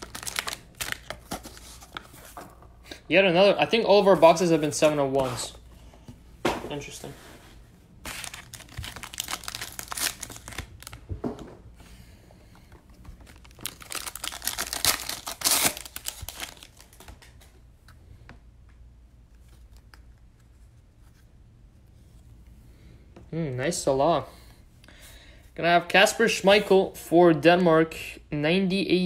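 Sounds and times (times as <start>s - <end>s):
plastic packaging crinkling: 0.0s - 2.4s, 8.0s - 11.1s, 13.1s - 17.5s
cards rustling and clicking: 0.0s - 2.7s, 8.0s - 11.1s, 12.9s - 17.6s.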